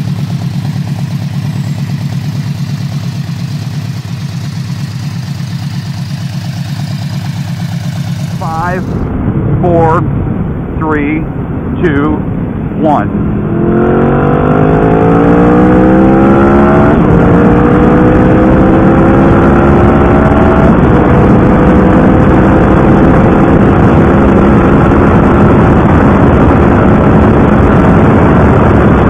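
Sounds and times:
motorcycle engine accelerating: 0.0 - 10.7, 11.3 - 29.0
wind rush: 6.0 - 29.0.

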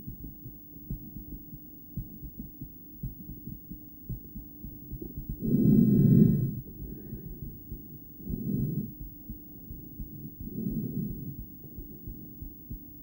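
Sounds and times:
heartbeat through stethoscope: 0.0 - 13.0
breath through stethoscope: 5.1 - 9.2.

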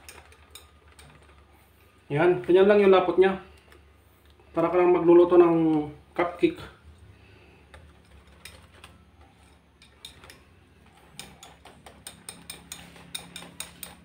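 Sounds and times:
whisk clicking against glass bowl: 11.2 - 14.0.

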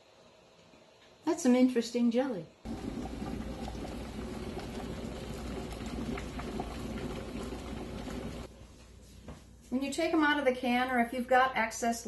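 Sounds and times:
water boiling hard: 2.7 - 8.5.

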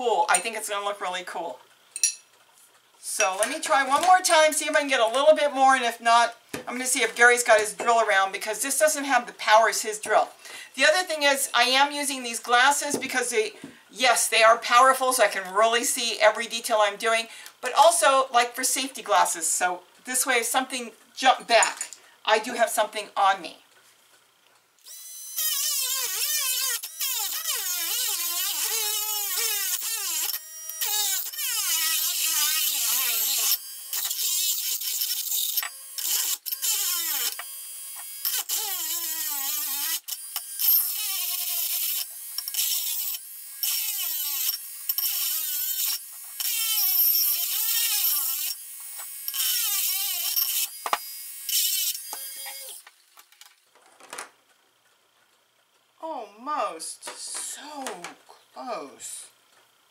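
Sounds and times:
rotary tool grinding ceramic: 24.8 - 52.8.

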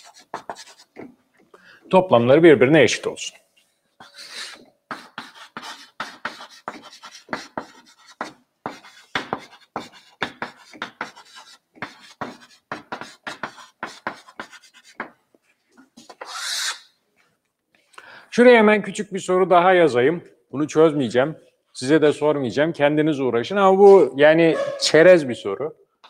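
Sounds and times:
chalk writing on blackboard: 0.0 - 1.1, 4.0 - 15.2, 16.0 - 16.9.

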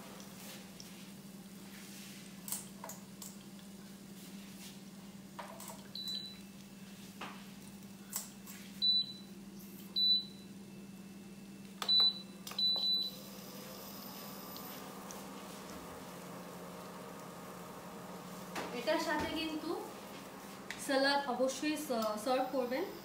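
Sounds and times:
steady low hum: 0.0 - 23.0
appliance panel beeps: 5.9 - 6.4, 8.8 - 9.3, 9.9 - 10.6, 11.8 - 13.3.

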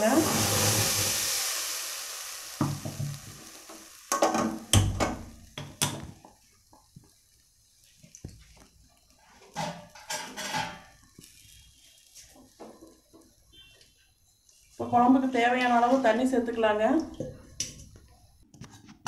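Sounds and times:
hiss: 0.0 - 8.4.

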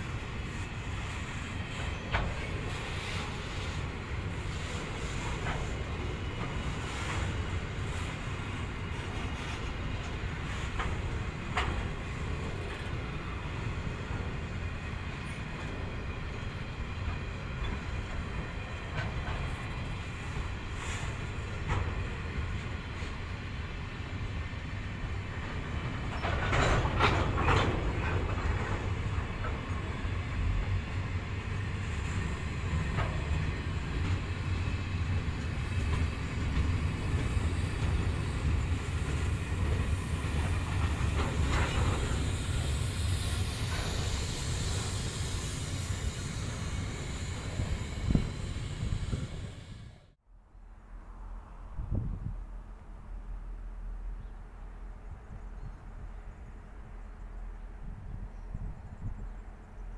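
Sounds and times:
train wheels rumbling on rail: 0.0 - 50.2, 50.8 - 59.9
wheels clicking over rail joints: 1.8 - 16.4, 24.1 - 48.2.

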